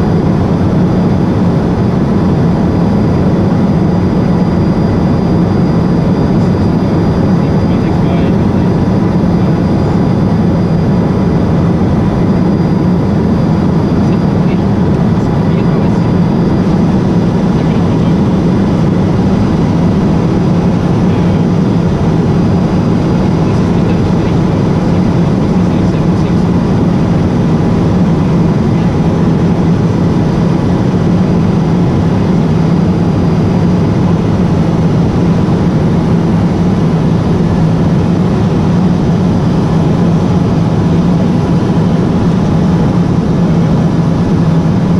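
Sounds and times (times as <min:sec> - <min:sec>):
airflow rushing: 0:00.0 - 0:30.4
faint high whine: 0:00.0 - 0:44.9
propeller engine drone: 0:00.0 - 0:44.9.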